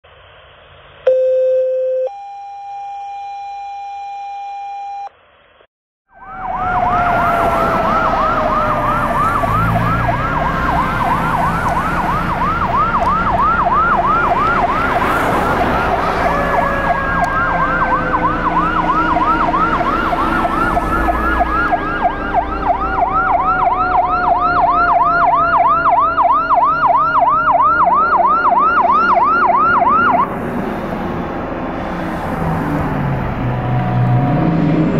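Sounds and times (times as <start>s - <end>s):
two-tone dispatch alert: 1.1s - 5.1s
siren tones gliding downward: 6.1s - 30.4s, 32.3s - 34.9s
fire engine siren yelping: 6.1s - 30.9s.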